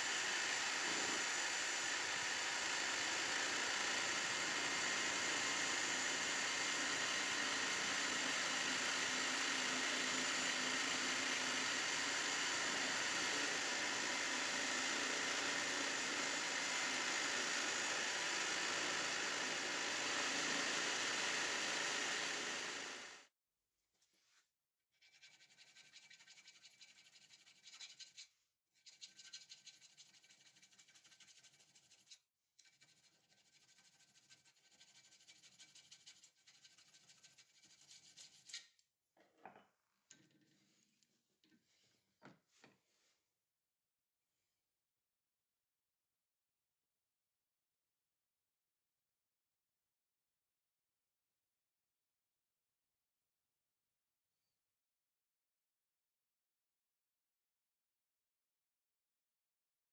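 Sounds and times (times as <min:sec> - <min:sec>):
bench drill cutting metal: 0:00.0 - 0:23.3
hand file scraping metal: 0:25.0 - 0:38.8.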